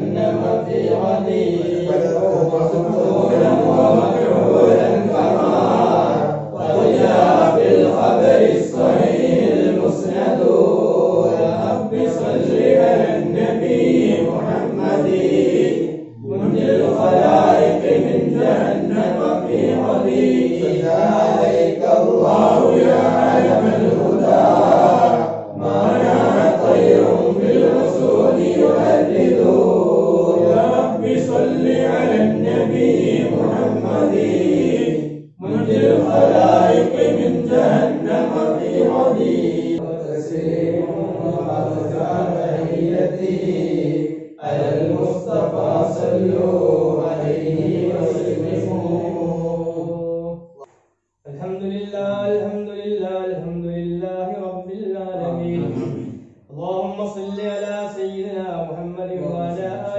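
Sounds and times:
men chanting in unison: 0:00.0 - 0:50.5, 0:51.3 - 0:59.9.

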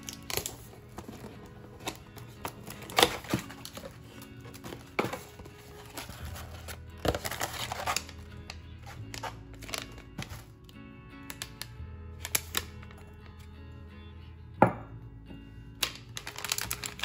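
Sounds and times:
paper rustling: 0:00.0 - 0:10.5
foil crinkling: 0:00.0 - 0:10.6, 0:15.8 - 0:17.0
soft background music: 0:00.0 - 0:17.0.

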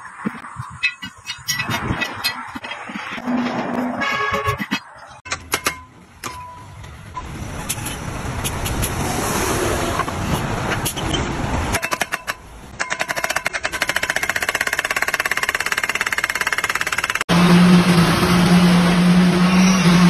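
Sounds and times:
hammer pounding steel post: 0:04.0 - 0:06.6.

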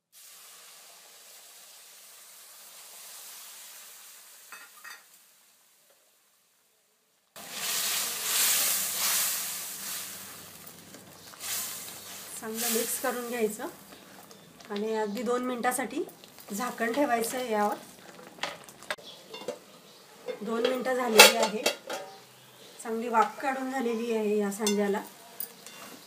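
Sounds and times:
boiling water hissing and bubbling: 0:00.0 - 0:06.5, 0:07.2 - 0:22.9
food sizzling in a pan: 0:00.0 - 0:26.0
spatula scraping a pan: 0:20.3 - 0:22.3.

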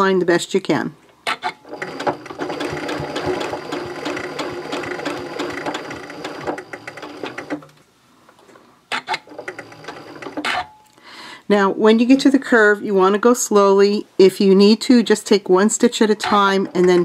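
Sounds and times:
sewing machine stitching: 0:01.3 - 0:07.7, 0:08.9 - 0:10.6, 0:16.2 - 0:17.0.

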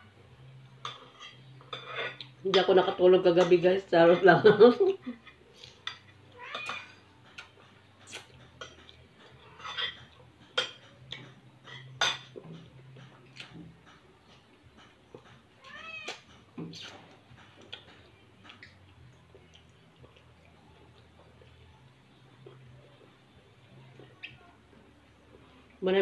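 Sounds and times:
cat meowing: 0:06.4 - 0:07.0, 0:15.6 - 0:16.2.

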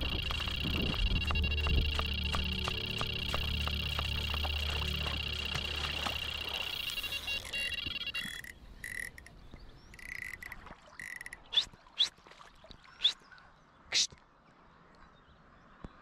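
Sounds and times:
frogs croaking: 0:00.0 - 0:11.6.

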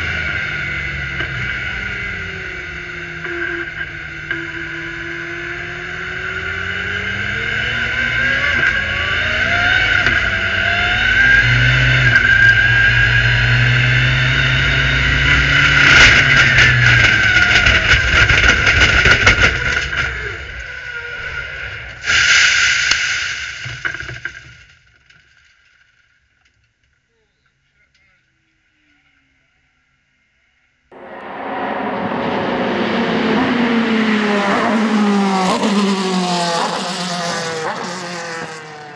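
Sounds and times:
race car engine accelerating: 0:00.0 - 0:20.3, 0:30.9 - 0:38.9.

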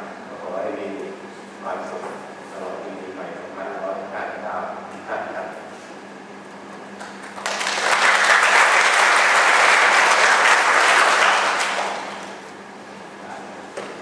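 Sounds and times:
audience applauding: 0:07.2 - 0:12.4.

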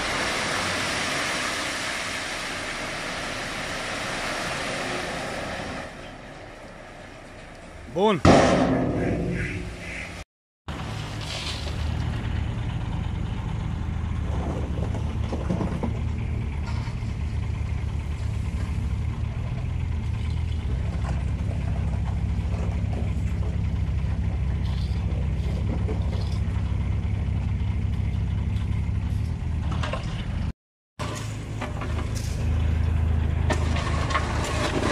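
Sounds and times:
diesel engines running: 0:08.8 - 0:34.9.

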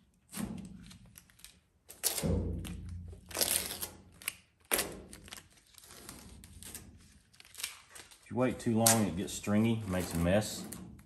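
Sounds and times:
masking tape peeling off metal: 0:00.2 - 0:11.0
tape crinkling: 0:02.9 - 0:10.2.

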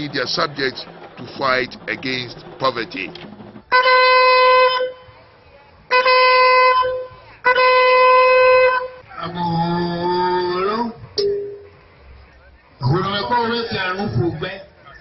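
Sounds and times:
long horn blasts: 0:03.7 - 0:05.1, 0:05.9 - 0:09.0.

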